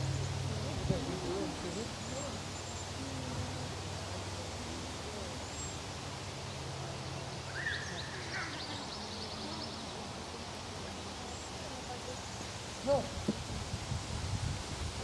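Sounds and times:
faint distant voices: 0.0 - 15.0
low background noise: 0.0 - 15.0
songbird song with trill: 1.5 - 12.5.

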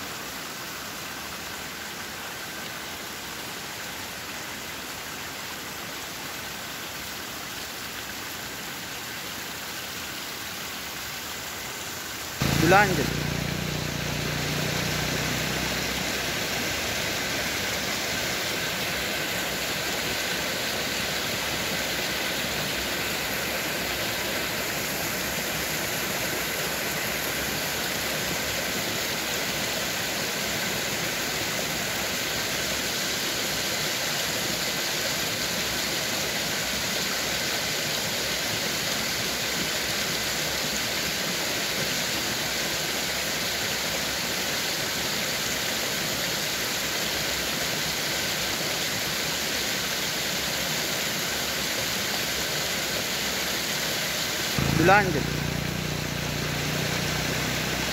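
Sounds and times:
stream rushing over boulders: 0.0 - 57.9.

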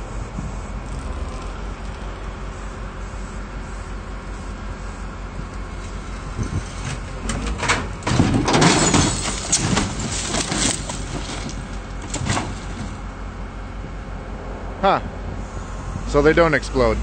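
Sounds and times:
car crashing into ground: 6.2 - 13.0.

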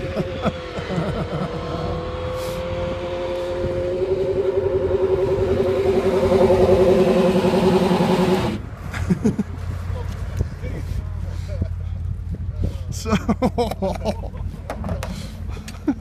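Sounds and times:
race car engine: 0.0 - 8.8.

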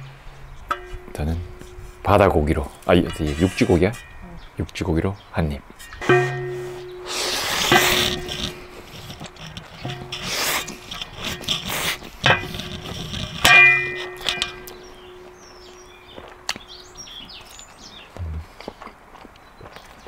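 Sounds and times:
small birds chirping: 0.0 - 12.2, 13.8 - 20.0
utensil clanging on pot: 0.7 - 2.2, 5.8 - 15.7.

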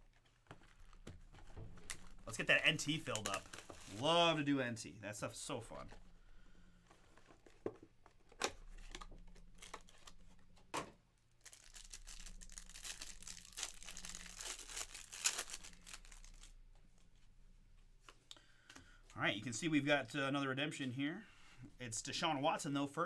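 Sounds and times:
wrapper tearing and crinkling: 1.9 - 4.3, 8.8 - 10.2, 11.4 - 16.6.

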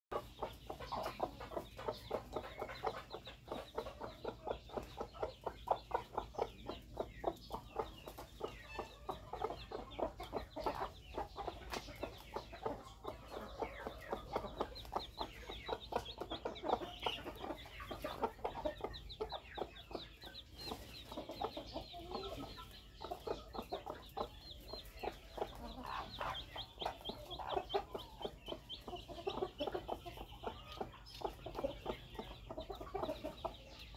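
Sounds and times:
chickens clucking: 0.1 - 33.9.

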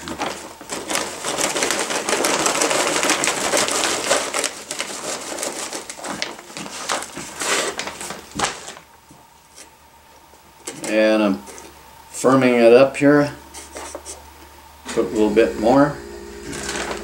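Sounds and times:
plastic bag crinkling: 0.0 - 9.7, 16.5 - 17.0.

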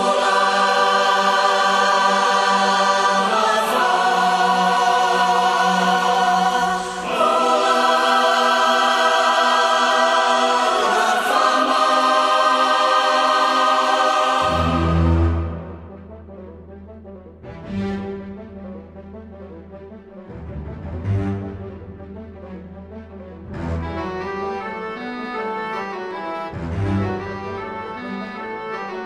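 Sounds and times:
choir singing held chords: 0.0 - 16.7.

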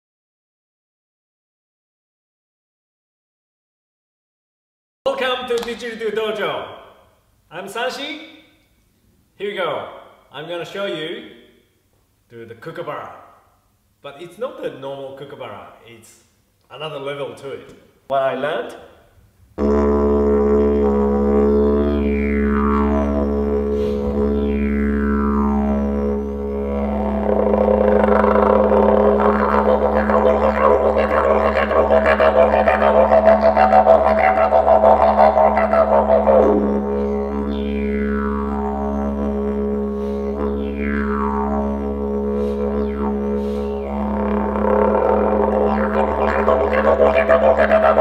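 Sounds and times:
didgeridoo drone: 19.6 - 48.0.

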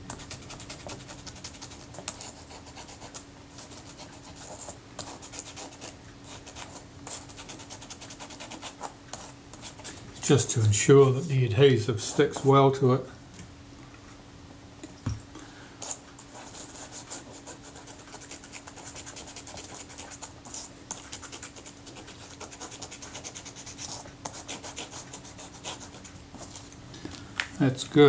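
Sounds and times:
cotton swab scratching leatherette: 0.2 - 9.9, 15.9 - 26.6.

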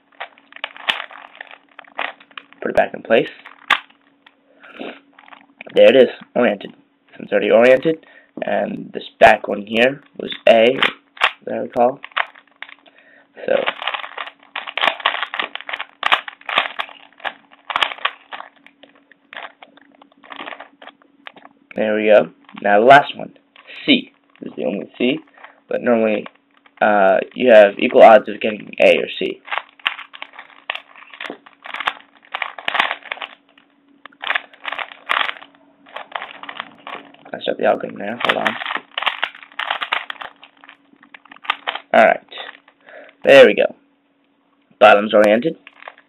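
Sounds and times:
plastic puzzle cube clacking: 0.2 - 2.5, 13.5 - 21.4, 29.4 - 33.4, 34.1 - 37.2, 38.2 - 41.9.

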